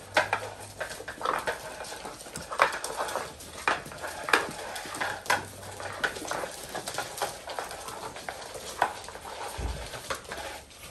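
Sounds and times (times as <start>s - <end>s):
puppies' paws clicking on hard floor: 0.0s - 10.9s
puppy pads rustling: 0.0s - 10.9s
low thump: 9.6s - 9.9s.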